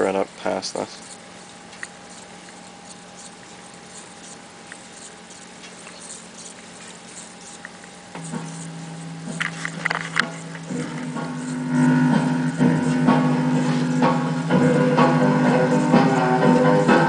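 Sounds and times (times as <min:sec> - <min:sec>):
reel-to-reel recorder humming: 0:00.0 - 0:17.0
faint ticks: 0:00.8 - 0:13.2.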